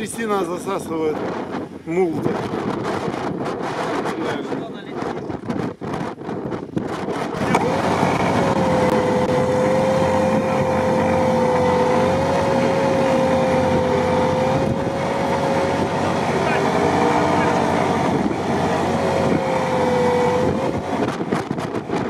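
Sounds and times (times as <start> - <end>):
car engine revving hard: 7.0 - 22.0
steady high whine: 7.1 - 22.0.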